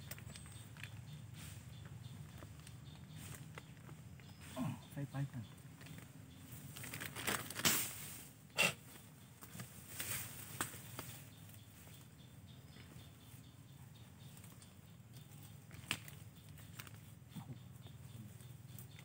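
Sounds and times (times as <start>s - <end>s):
plastic bag crinkling: 6.7s - 7.8s.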